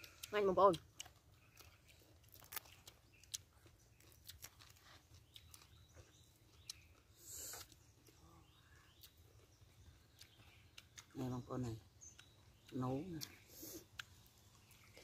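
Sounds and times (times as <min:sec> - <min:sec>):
eating mouth noises: 0:00.0 - 0:09.2.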